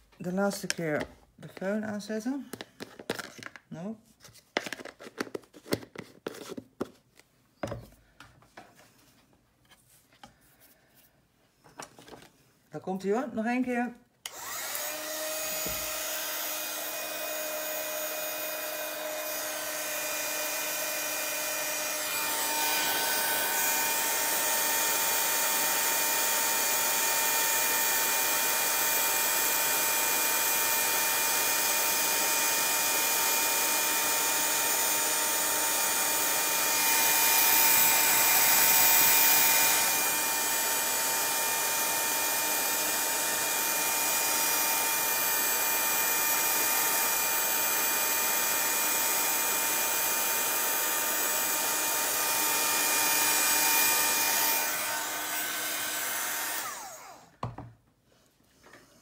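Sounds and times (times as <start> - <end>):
heat gun blowing with motor whine: 14.2 - 57.5.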